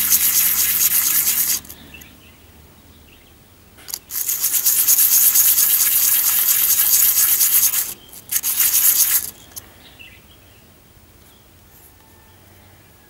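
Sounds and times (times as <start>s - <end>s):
metal disc sanding on sandpaper: 0.0s - 1.7s, 4.0s - 9.4s.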